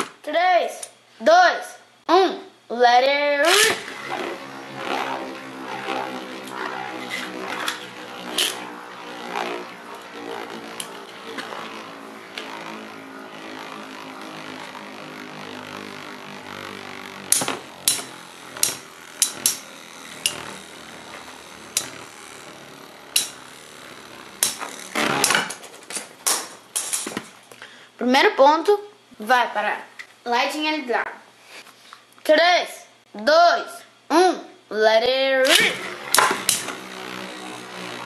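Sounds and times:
spinning tops whirring: 3.0s - 27.6s, 35.4s - 38.0s
spinning tops clashing clacks: 24.4s - 27.3s.

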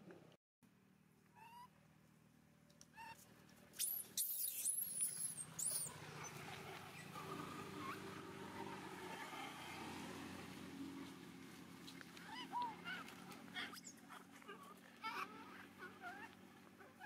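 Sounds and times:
faint monkey calls: 1.3s - 1.8s, 2.9s - 9.8s, 11.8s - 17.0s
monkey squealing: 3.8s - 5.9s, 12.2s - 16.3s.

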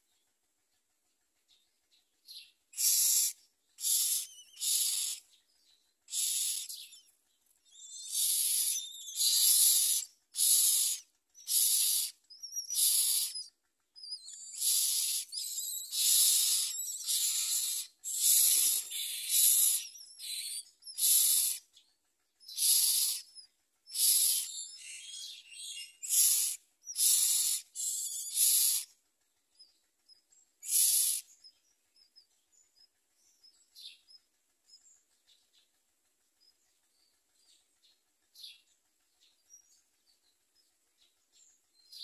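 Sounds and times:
nestlings begging harsh rasps: 2.8s - 5.3s, 6.1s - 7.1s, 7.7s - 21.7s, 22.4s - 29.0s, 29.6s - 32.2s.

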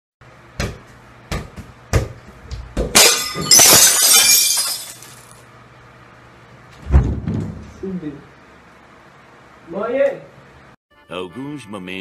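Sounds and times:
glass pieces clattering and tinkling: 3.0s - 5.4s
glass shattering: 3.0s - 5.4s.

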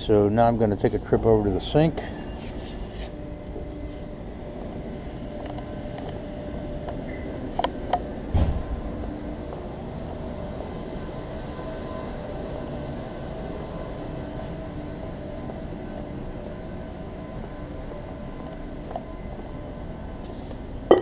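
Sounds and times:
faint hum tones: 0.0s - 21.0s
workshop rumble and hum: 0.0s - 21.0s
low thump: 8.3s - 8.8s.

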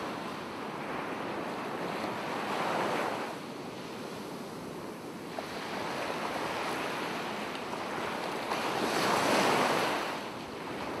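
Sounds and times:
ocean waves on beach: 0.0s - 11.0s.

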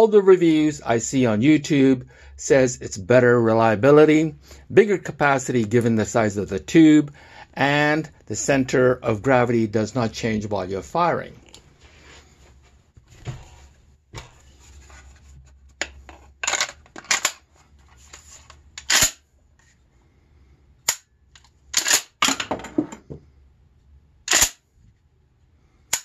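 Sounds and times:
shotgun metallic clacks: 24.3s - 24.6s.

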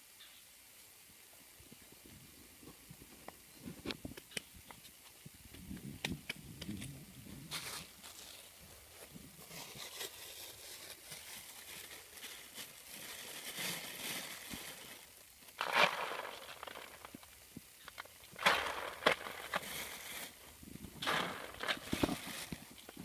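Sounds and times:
soft scratchy rustling: 6.6s - 23.0s.

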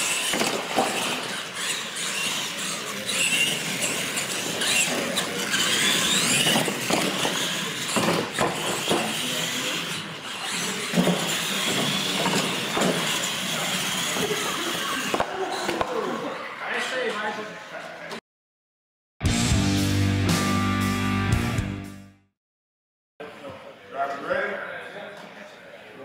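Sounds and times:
toy truck motors whining: 0.0s - 17.9s.

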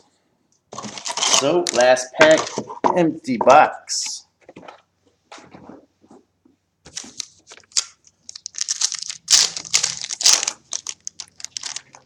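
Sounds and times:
card pack wrapper tearing: 0.8s - 2.1s, 6.9s - 12.0s.

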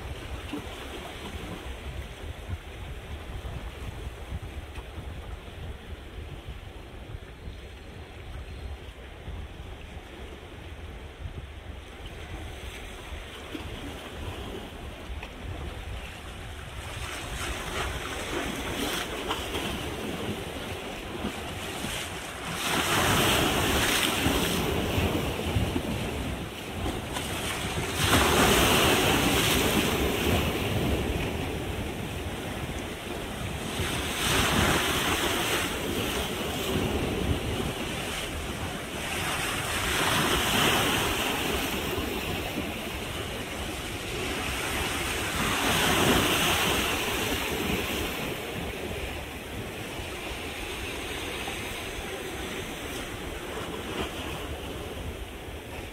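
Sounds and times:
waves breaking against rocks: 12.1s - 55.9s.

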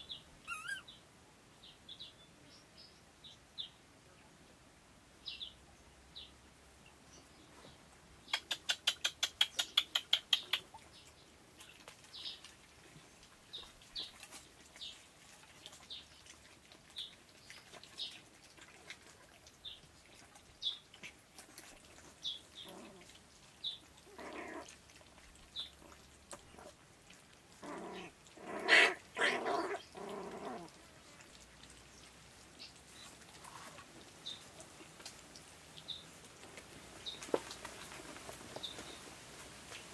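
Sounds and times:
puppies whining and yelping: 0.4s - 0.9s.

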